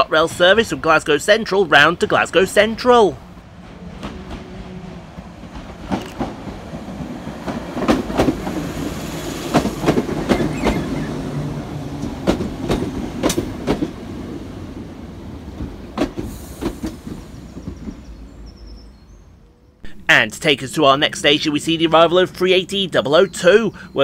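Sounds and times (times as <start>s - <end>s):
train running rumble: 0.0s - 24.0s
wheels clicking over rail joints: 3.4s - 14.9s.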